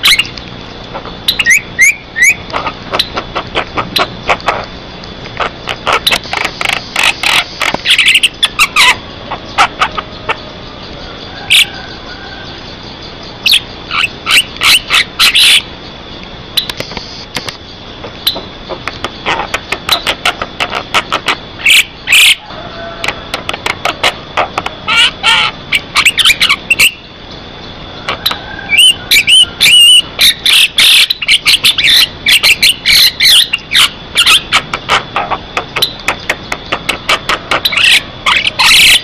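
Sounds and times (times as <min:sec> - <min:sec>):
myna chattering and whistling: 0:00.0 - 0:15.8, 0:16.6 - 0:27.1, 0:27.9 - 0:39.0.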